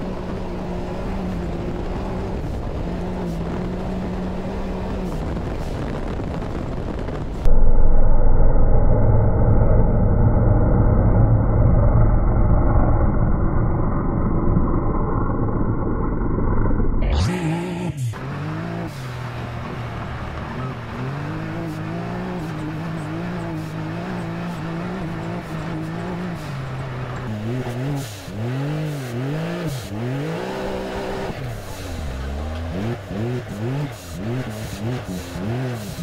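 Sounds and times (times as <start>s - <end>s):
engine revving: 0.0s - 7.2s, 15.3s - 36.0s.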